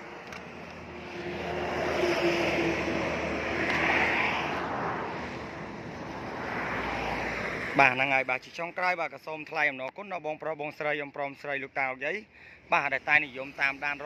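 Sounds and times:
passing vehicle engine: 0.0s - 8.0s.

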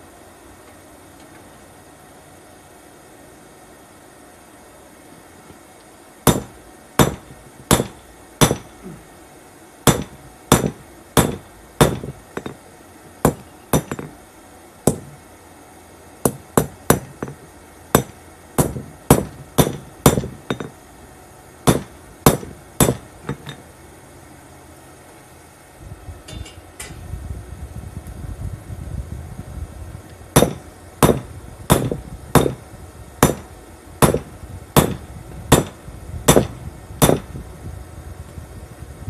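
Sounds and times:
hammer striking steel on anvil: 6.3s - 8.7s, 9.9s - 12.6s, 13.2s - 14.1s, 18.0s - 20.7s, 26.3s - 27.0s, 33.2s - 37.2s.

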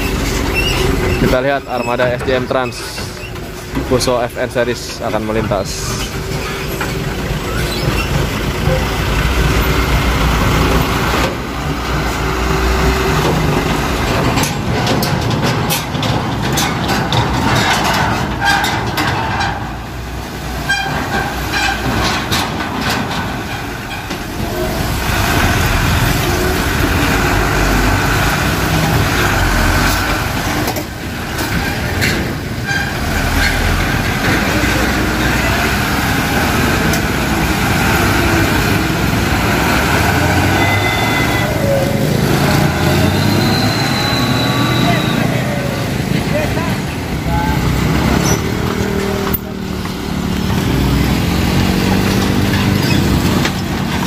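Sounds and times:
diesel truck engines rumbling: 0.0s - 54.0s
wheels knocking over rails: 6.2s - 43.2s.

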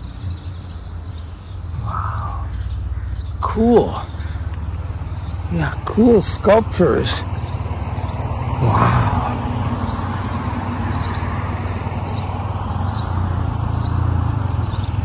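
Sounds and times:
low outdoor rumble: 0.0s - 15.0s.

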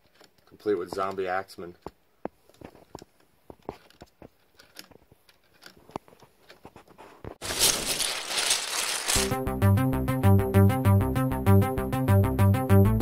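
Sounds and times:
plastic parts clicking and clattering: 0.0s - 6.7s, 7.4s - 9.3s.

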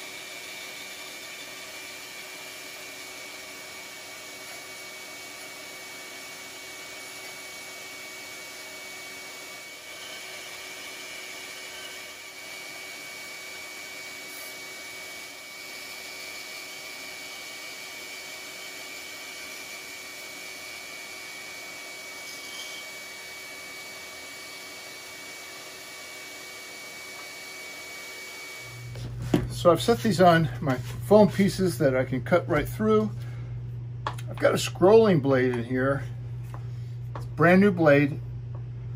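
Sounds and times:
bandsaw cutting wood: 0.0s - 31.7s.

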